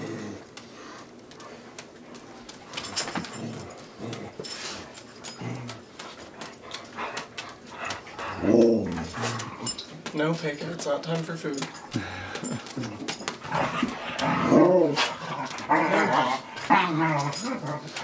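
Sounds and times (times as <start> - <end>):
dog whining: 13.8 - 18.0.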